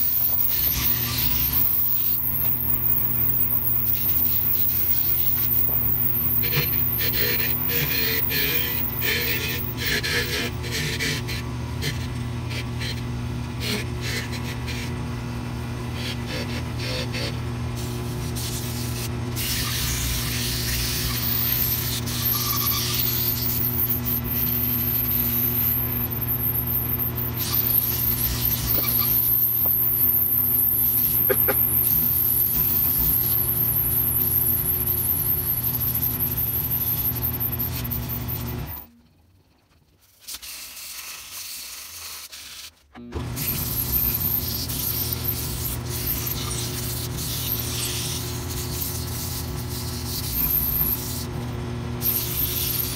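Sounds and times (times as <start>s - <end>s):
wood lathe motor hum: 0.0s - 14.9s, 19.4s - 38.9s
tool scraping spinning wood: 0.0s - 15.0s, 15.8s - 39.0s, 41.2s - 52.9s.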